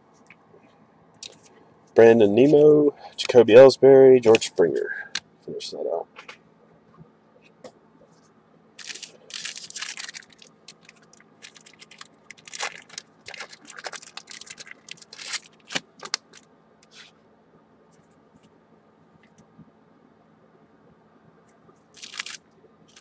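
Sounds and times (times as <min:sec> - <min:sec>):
foil wrapper crinkling and tearing: 0:08.8 - 0:17.0, 0:21.9 - 0:23.0.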